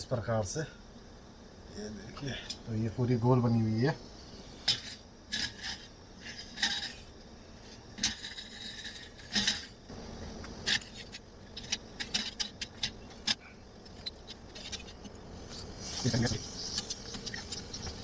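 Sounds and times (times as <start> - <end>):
metal utensils scraping and clinking: 4.6 - 9.8, 10.6 - 15.1.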